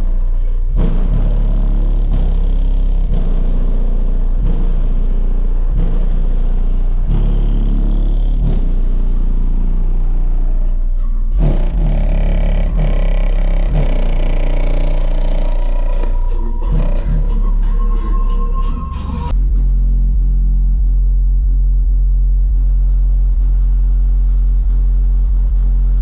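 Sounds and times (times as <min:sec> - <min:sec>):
loud bass music from car: 0:00.0 - 0:26.0.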